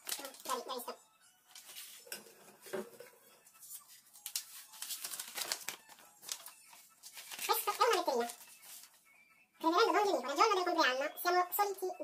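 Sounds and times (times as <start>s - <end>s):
paper rustling: 1.5s - 2.3s, 3.6s - 9.0s.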